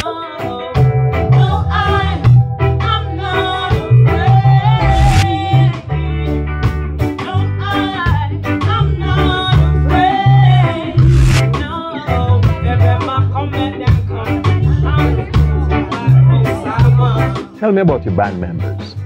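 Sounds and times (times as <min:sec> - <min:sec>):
woman singing: 0:00.0 - 0:06.5, 0:07.1 - 0:17.5
reggae band playing: 0:00.0 - 0:19.0.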